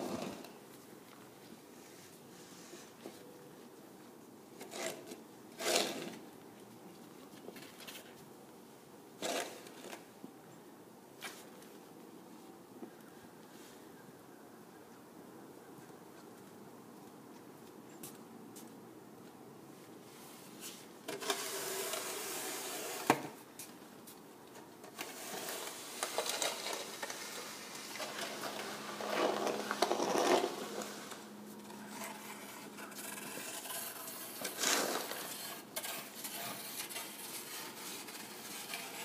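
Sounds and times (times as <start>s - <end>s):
shovels scraping snow on concrete: 0.0s - 0.6s, 4.6s - 6.3s, 9.2s - 10.0s, 20.1s - 23.5s, 24.8s - 39.0s.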